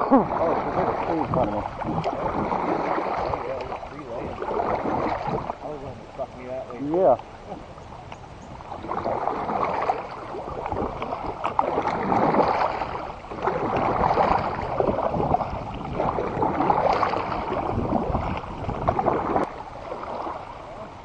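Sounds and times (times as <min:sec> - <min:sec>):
paddle splashing through water: 0:00.0 - 0:21.0.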